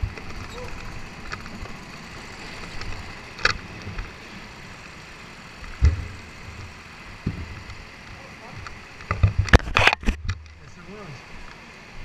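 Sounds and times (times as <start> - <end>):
heavy deep thump: 5.8 - 6.2.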